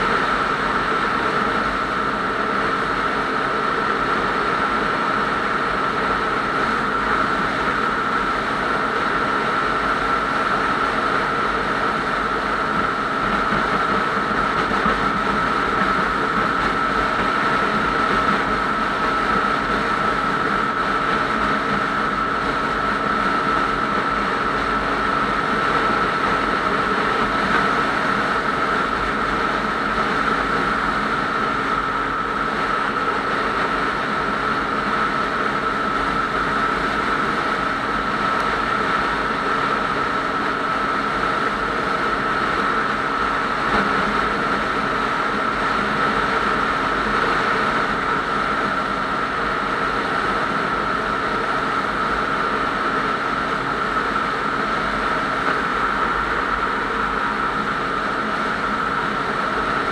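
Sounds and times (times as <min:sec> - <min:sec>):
motorcycle engine drone: 0:00.0 - 0:59.9
steady high whine: 0:00.0 - 0:59.9.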